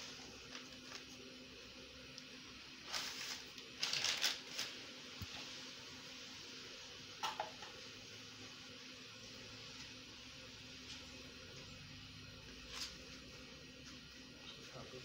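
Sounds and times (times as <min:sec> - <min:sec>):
flour bag rustling: 0:00.0 - 0:01.2, 0:02.7 - 0:05.6
faint steady hum: 0:00.0 - 0:15.0.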